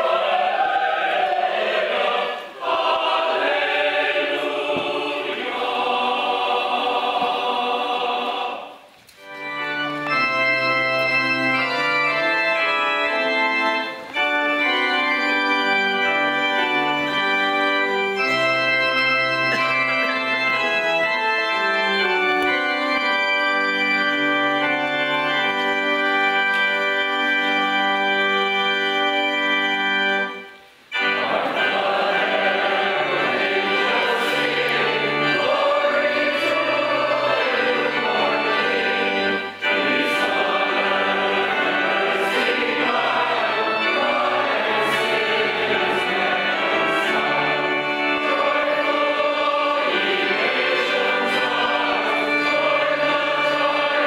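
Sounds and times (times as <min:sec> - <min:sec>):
choir singing: 0:00.0 - 0:08.9, 0:31.0 - 0:54.0
organ playing sustained chords: 0:00.0 - 0:54.0.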